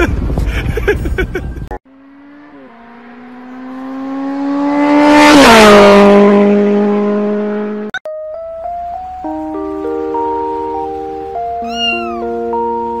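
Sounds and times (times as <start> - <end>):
race car passing by: 1.9 - 7.9.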